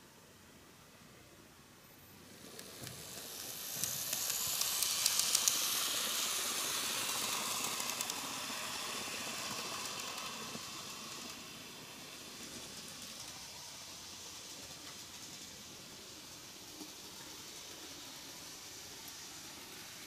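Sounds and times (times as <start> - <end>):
model train motor whirring: 2.2 - 20.0
wheels clicking on rails: 2.3 - 20.0.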